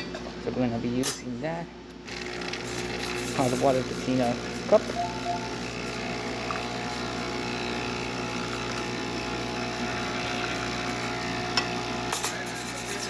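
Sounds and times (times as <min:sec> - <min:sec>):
pump buzzing: 0:02.1 - 0:12.0.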